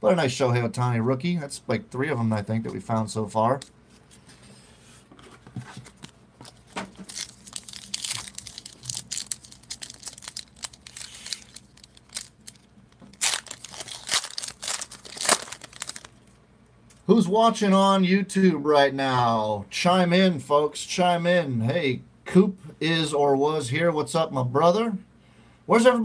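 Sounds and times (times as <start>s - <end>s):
foil wrapper tearing: 6.5s - 16.3s.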